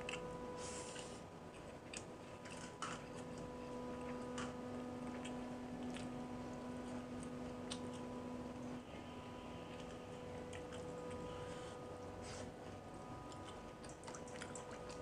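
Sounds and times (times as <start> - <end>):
faint steady hum: 0.0 - 15.0
person chewing: 0.8 - 4.2, 13.3 - 15.0.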